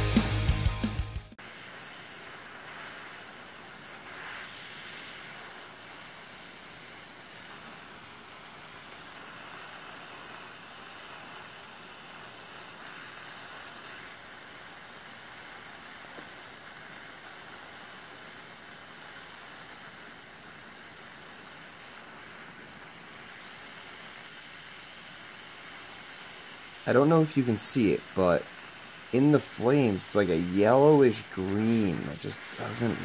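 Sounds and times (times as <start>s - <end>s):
torch flame hissing: 0.0s - 33.0s.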